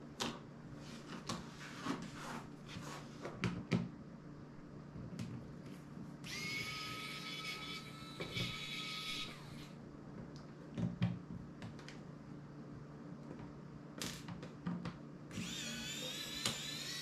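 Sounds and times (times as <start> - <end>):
electric screwdriver whirring: 6.3 - 9.7, 15.3 - 17.0.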